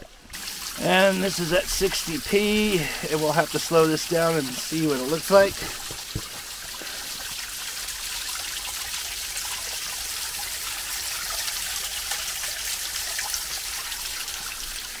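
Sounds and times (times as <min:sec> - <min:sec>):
waterfall splashing: 0:00.3 - 0:08.6.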